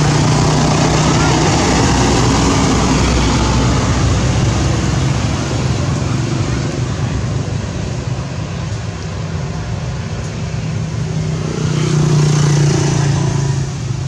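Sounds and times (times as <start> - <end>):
loud wash of noise: 0.0 - 14.0
vehicle engine humming: 0.0 - 14.0.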